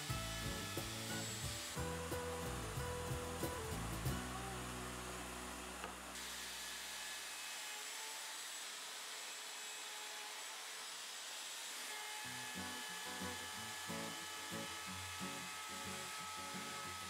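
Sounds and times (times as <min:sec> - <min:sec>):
background music: 0:00.0 - 0:06.1
router bit whining: 0:00.0 - 0:17.0.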